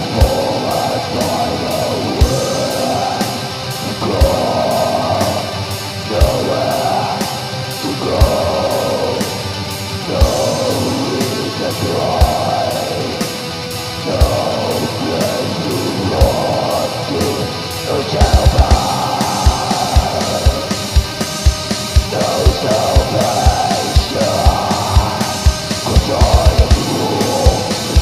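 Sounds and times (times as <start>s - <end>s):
distorted electric guitars: 0.0s - 28.0s
heavy low drum hits: 18.2s - 28.0s.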